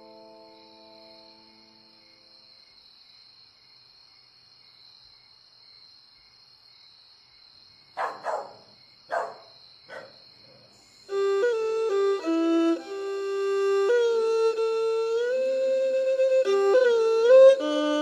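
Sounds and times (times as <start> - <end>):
instrumental music: 0.0 - 2.2, 11.1 - 18.0
crickets chirring: 0.0 - 18.0.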